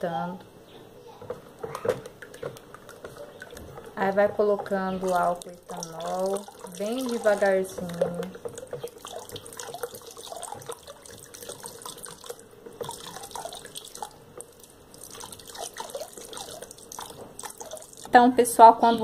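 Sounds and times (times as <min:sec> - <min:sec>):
liquid pouring into bucket: 0:02.1 - 0:18.1
small ticks and splashes: 0:05.0 - 0:18.1.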